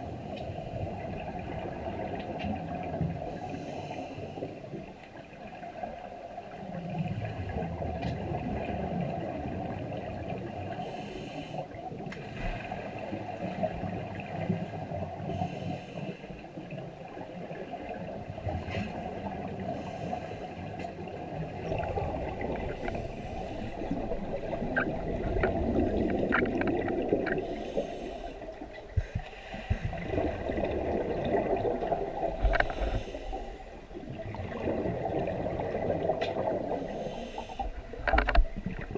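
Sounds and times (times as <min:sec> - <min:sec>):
exhaled air bubbles rumbling: 0:00.0 - 0:10.9, 0:11.7 - 0:38.9
scuba regulator inhale hiss: 0:03.4 - 0:04.5, 0:10.8 - 0:11.6, 0:15.3 - 0:16.4, 0:19.8 - 0:20.7, 0:27.4 - 0:30.0, 0:32.5 - 0:33.7, 0:36.8 - 0:37.7.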